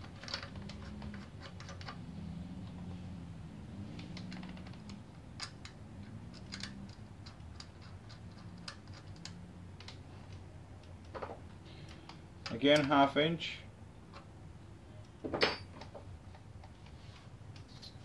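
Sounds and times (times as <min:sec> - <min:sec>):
small metallic clicks: 0:00.0 - 0:02.9, 0:03.9 - 0:13.0.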